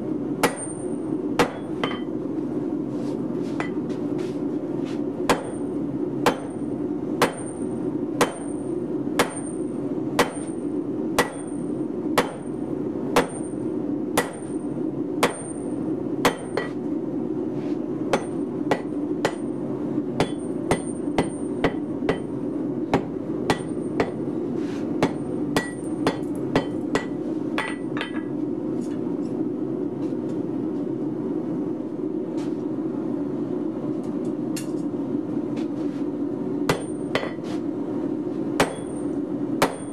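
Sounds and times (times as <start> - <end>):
steady low hum: 0.0 - 39.9
hammer ringing on steel anvil: 1.4 - 2.1, 25.0 - 28.2, 38.6 - 39.9.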